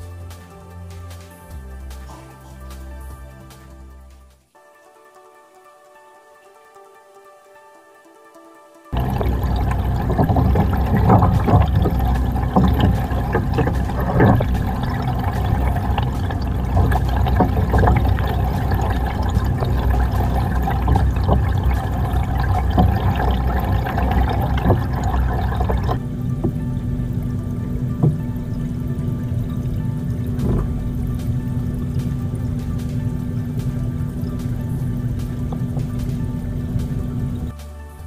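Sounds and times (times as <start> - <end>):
muffled underwater rumble: 9.0 - 37.5.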